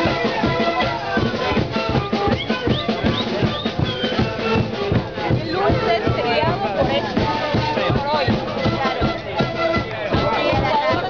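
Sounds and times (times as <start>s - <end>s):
panpipes holding notes: 0.0s - 11.0s
steady drum beat: 0.0s - 11.0s.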